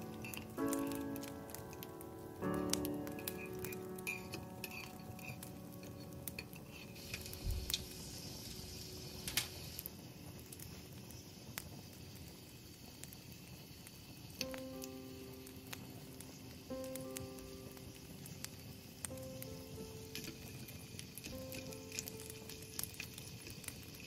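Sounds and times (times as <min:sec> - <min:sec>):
hissing: 0:00.0 - 0:24.0
utensils clinking against pan: 0:03.1 - 0:07.4.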